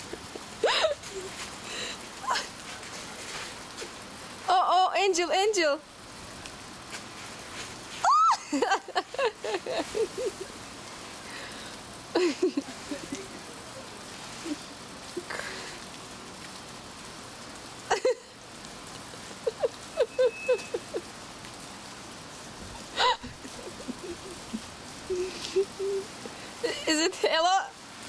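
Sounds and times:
snow swishing and crunching: 6.8s - 10.6s, 12.4s - 13.4s.

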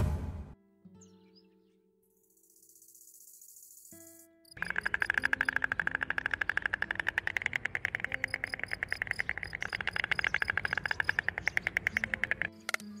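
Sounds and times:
stork bill clattering: 4.6s - 13.0s.

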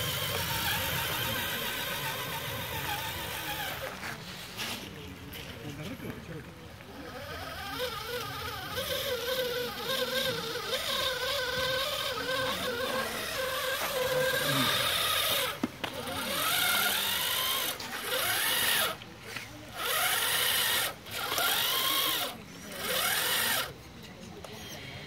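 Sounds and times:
toy truck motor whining: 0.0s - 5.5s, 6.8s - 25.0s.

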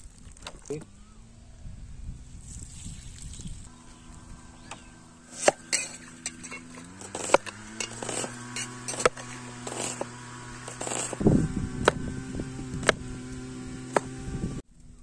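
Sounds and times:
steady low hum: 3.5s - 14.6s
metal pots and utensils clinking: 5.4s - 10.1s.

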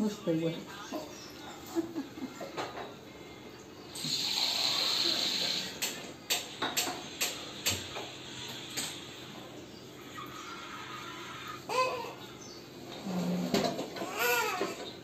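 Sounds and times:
hiss: 4.0s - 6.0s.

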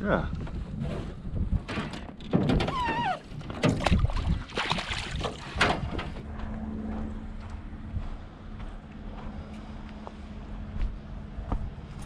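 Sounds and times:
water splashing against boat: 3.2s - 5.9s
steady low hum: 5.8s - 12.0s.

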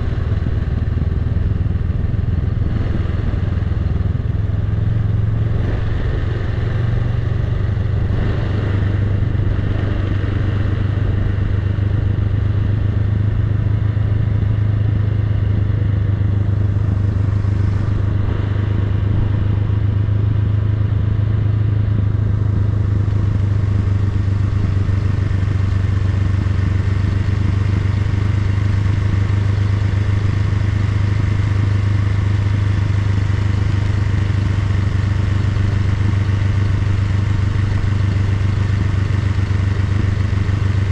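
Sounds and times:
motorcycle engine running: 0.0s - 40.9s.

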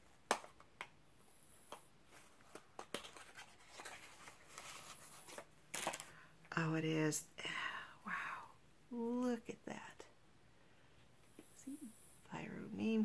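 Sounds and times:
bottle packaging rustling: 2.2s - 6.2s.

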